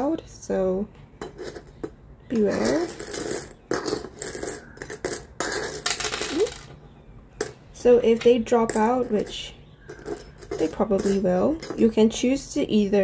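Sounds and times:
plastic charms clattering in metal wok: 1.2s - 6.8s, 8.2s - 12.9s.

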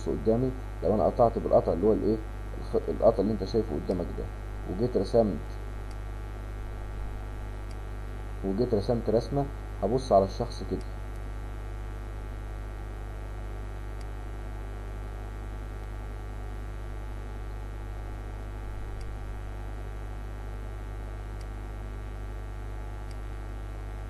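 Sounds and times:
electrical mains hum: 0.0s - 24.0s
faint ticks: 7.6s - 7.9s, 13.9s - 14.2s, 21.0s - 21.8s, 22.8s - 23.5s.

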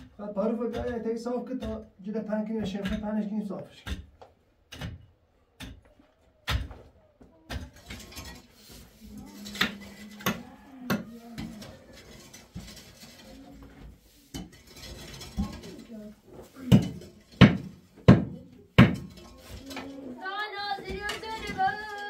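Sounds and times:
hard objects knocking and clinking: 7.4s - 20.0s.

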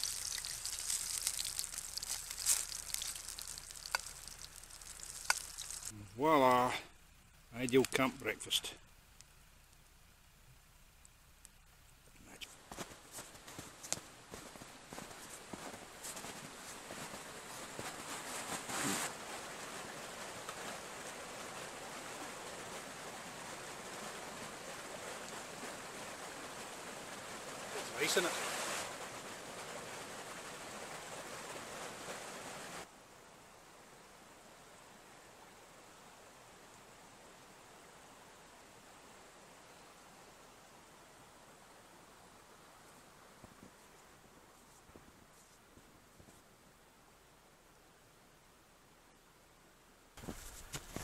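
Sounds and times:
sausage sizzling in frying pan: 0.0s - 5.9s
stream rushing over rocks: 0.0s - 6.7s, 13.6s - 43.4s.

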